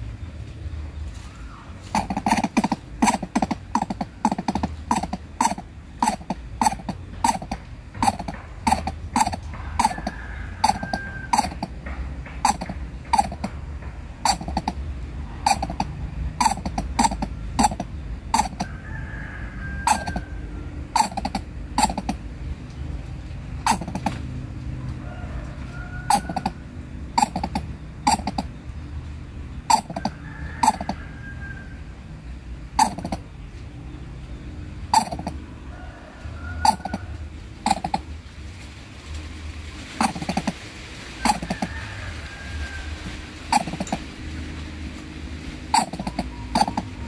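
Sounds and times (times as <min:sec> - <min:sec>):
bird giving low clicking calls: 0:01.3 - 0:18.8, 0:19.8 - 0:22.8, 0:23.5 - 0:24.3, 0:26.0 - 0:28.8, 0:29.6 - 0:31.1, 0:32.8 - 0:33.7, 0:34.9 - 0:35.4, 0:36.6 - 0:38.1, 0:39.9 - 0:40.6, 0:41.2 - 0:41.9, 0:43.4 - 0:44.2, 0:45.7 - 0:47.0.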